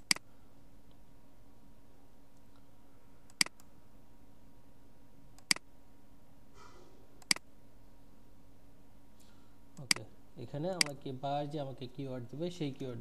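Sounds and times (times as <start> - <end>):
low steady hum: 0.0 - 13.0
computer mouse clicks: 3.3 - 3.7, 5.4 - 5.6, 7.2 - 7.4.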